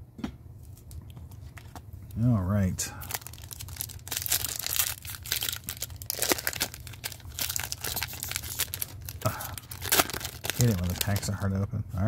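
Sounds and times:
foil wrapper crackling and tearing: 3.0 - 11.5.

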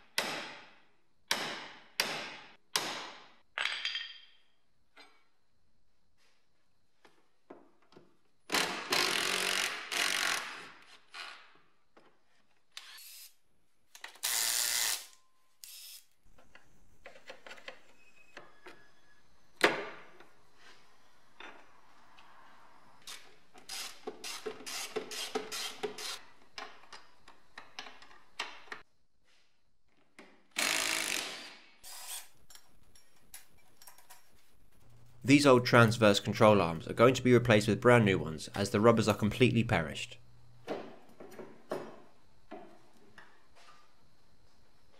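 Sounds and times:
cordless drill running in bursts: 14.2 - 15.1, 30.6 - 32.2.

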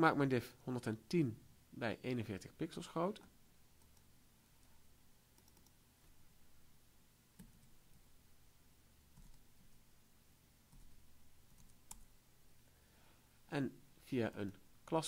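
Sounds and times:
computer mouse clicks: 3.8 - 4.7, 5.3 - 5.8, 7.4 - 8.0, 9.1 - 9.7, 10.7 - 12.1
computer keyboard clicks: 5.4 - 5.8.

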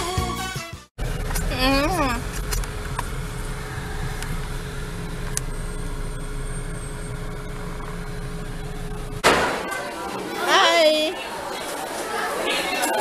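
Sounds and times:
engine and tyre rumble in car: 1.0 - 9.2.

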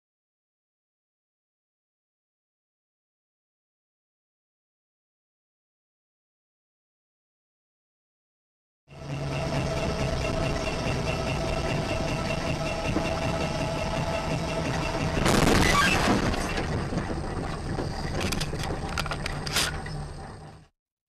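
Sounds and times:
car engine and road noise: 8.9 - 20.7
loud crash: 15.2 - 17.1.

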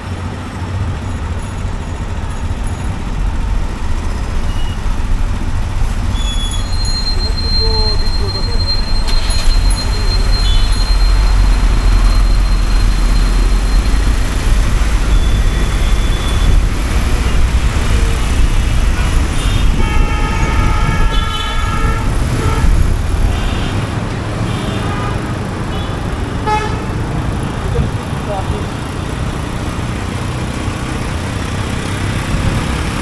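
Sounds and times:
traffic engine rumble: 0.0 - 33.0
vehicle horn: 17.2 - 27.1.

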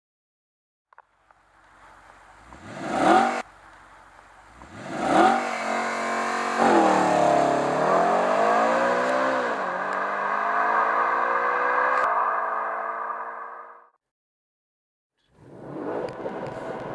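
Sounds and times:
car accelerating with gear shifts: 1.3 - 13.2, 15.3 - 16.9
car engine revving: 1.5 - 13.8, 15.3 - 16.9.

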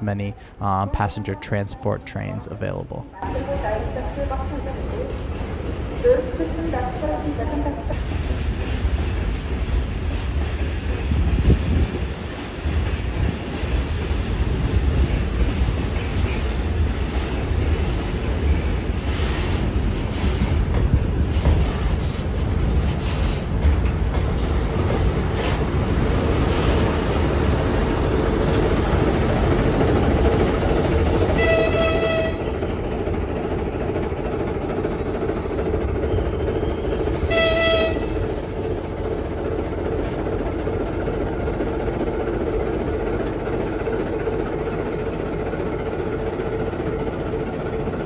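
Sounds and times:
locomotive horn blasts: 31.4 - 32.6, 37.3 - 38.2.

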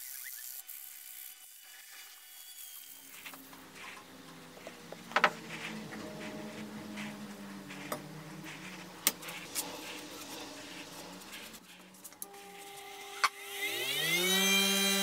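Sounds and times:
bench grinder humming: 0.0 - 15.0.

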